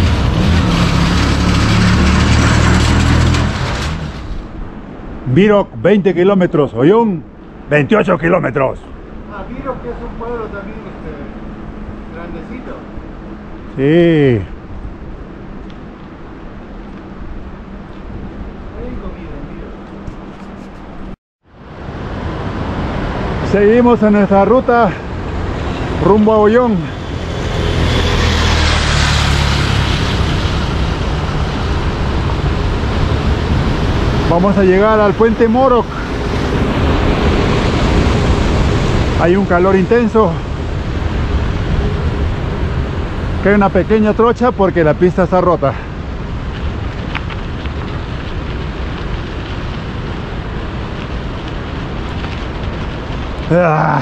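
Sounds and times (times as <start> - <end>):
vehicle passing: 0.0 - 5.3, 7.3 - 54.0
road and wind noise: 0.0 - 54.0
bike rolling over dirt track: 46.4 - 54.0.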